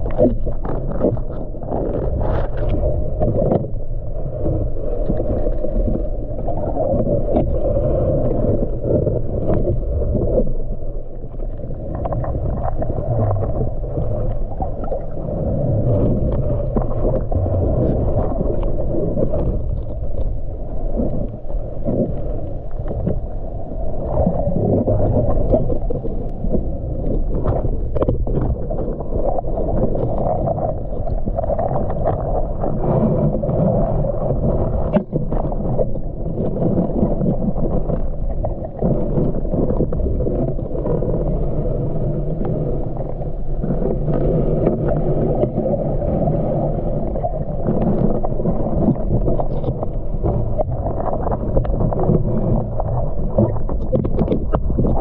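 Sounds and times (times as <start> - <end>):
underwater rumble of moving water: 0.0 - 55.0
underwater clicks and knocks: 47.2 - 55.0.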